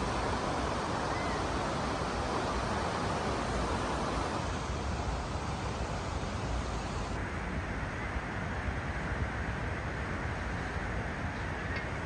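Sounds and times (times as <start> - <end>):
river rushing over gravel: 0.0 - 12.0.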